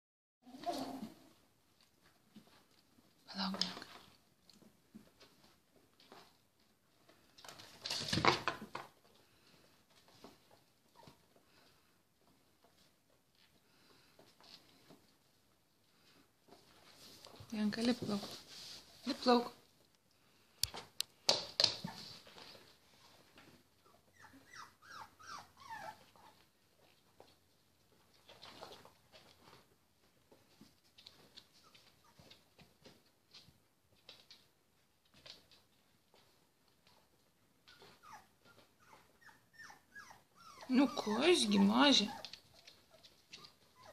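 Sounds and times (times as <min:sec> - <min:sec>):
puppies pattering and rustling: 0:00.5 - 0:43.9
puppies whimpering: 0:24.0 - 0:26.2, 0:37.7 - 0:43.9.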